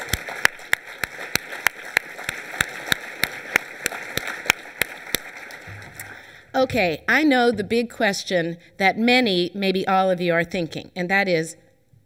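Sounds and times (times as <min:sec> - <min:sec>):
hands clapping close to microphone: 0:00.0 - 0:06.2
audience clapping: 0:00.0 - 0:06.4.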